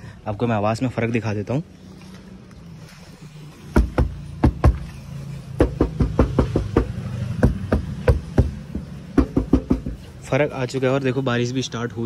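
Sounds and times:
knocking on car door panel: 3.7 - 4.8, 5.6 - 10.0.

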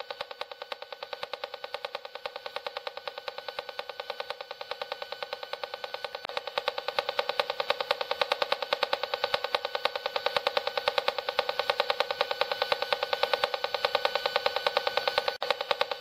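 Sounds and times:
rapid buzzing click from meter speaker: 0.0 - 16.0.

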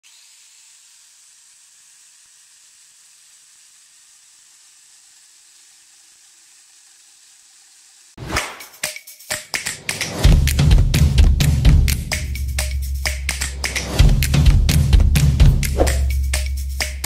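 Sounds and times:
faint steady hiss: 0.0 - 8.2.

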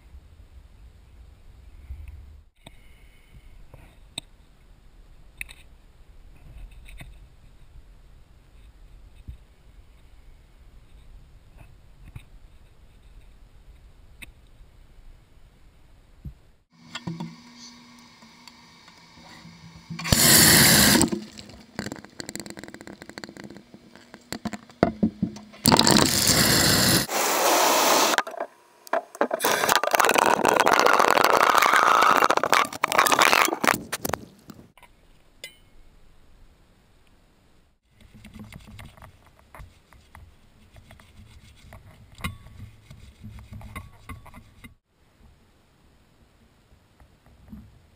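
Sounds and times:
water rushing into container: 20.0 - 21.9, 25.6 - 28.2, 29.4 - 33.7
scrubbing and rubbing: 29.4 - 33.9.

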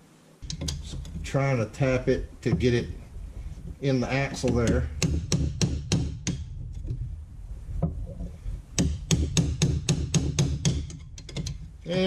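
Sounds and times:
hammer tapping on metal bar: 4.3 - 6.5, 8.8 - 11.6.

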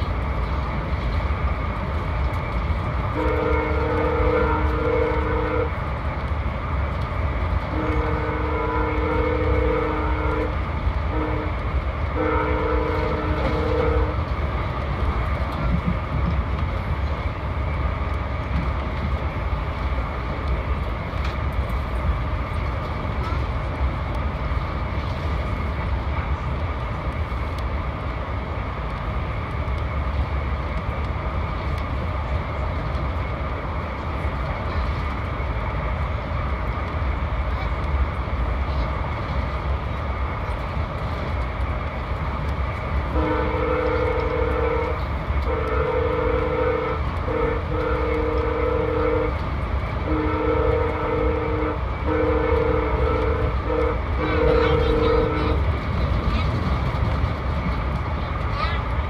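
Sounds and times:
train rumbling on rails: 0.0 - 59.0
locomotive horn blasts: 3.1 - 5.8, 7.7 - 14.2, 43.1 - 49.4, 50.0 - 55.6.

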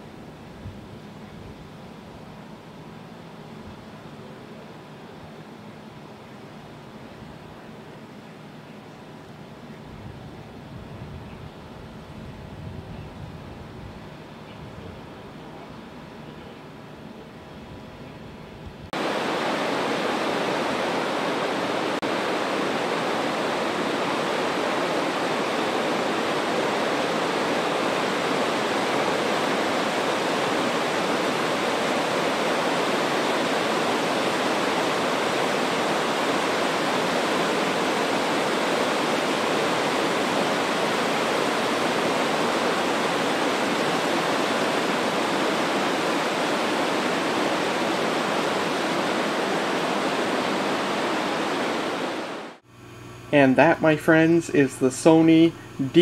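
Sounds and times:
river rapids rushing over rocks: 19.0 - 52.6.

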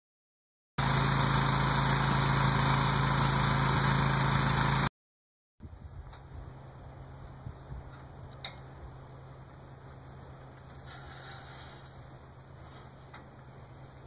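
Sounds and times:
engine humming: 0.8 - 4.9, 5.7 - 14.0.

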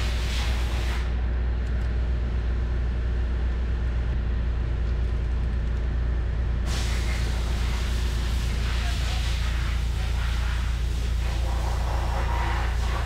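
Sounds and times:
low hum with held tones: 0.0 - 13.0.

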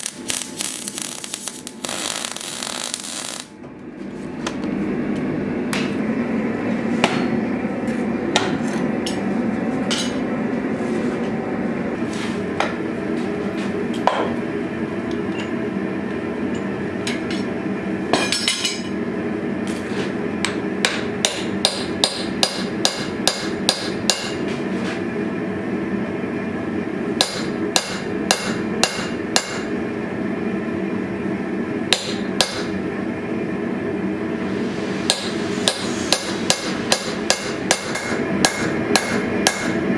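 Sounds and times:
steady hum of shop noise: 0.0 - 39.9
hammer striking punch on hot steel: 7.0 - 7.4, 8.3 - 8.6, 20.4 - 24.4, 27.2 - 29.7, 31.9 - 32.8, 35.1 - 39.8.

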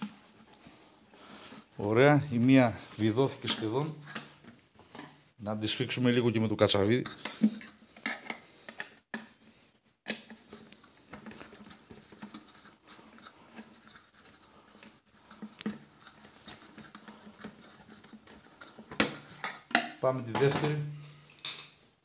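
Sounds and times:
hands handling plastic jar: 2.4 - 5.2, 10.1 - 21.3.

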